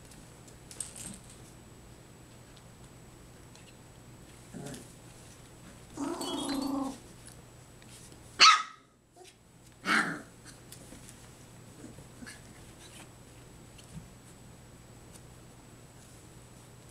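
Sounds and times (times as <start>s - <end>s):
puppy barking: 8.4s - 8.9s.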